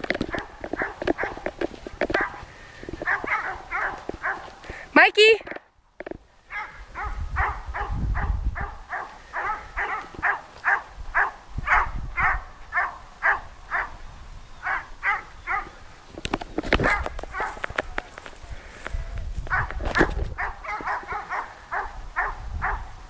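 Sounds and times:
rustling and knocks on microphone: 0.0 - 4.8, 16.2 - 18.4, 19.3 - 21.1
dog barking: 0.3 - 1.5, 2.1 - 2.4, 3.0 - 4.6, 6.5 - 14.0, 14.6 - 15.8, 16.8 - 17.6, 19.5 - 22.9.

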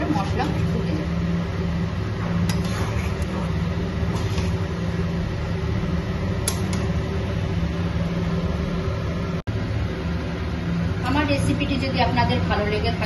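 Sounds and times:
low mechanical hum: 0.0 - 13.0
spatula scraping and tapping pan: 2.5 - 3.3.

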